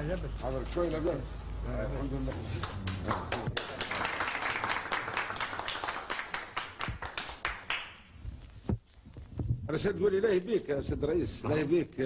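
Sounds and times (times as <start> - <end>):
small group applauding: 2.5 - 8.1.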